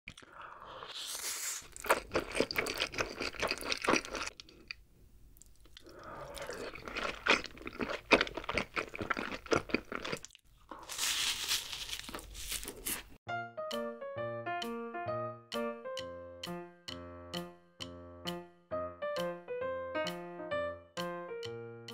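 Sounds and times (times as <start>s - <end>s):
noodles slurped: 0.1s - 4.6s, 5.6s - 11.4s
wet crunchy chewing: 0.1s - 4.8s, 5.4s - 13.2s.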